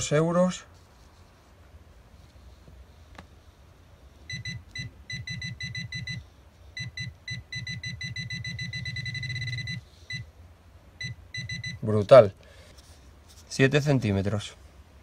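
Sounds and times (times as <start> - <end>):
metal detector beeping: 6.8 - 10.2, 11.0 - 11.8.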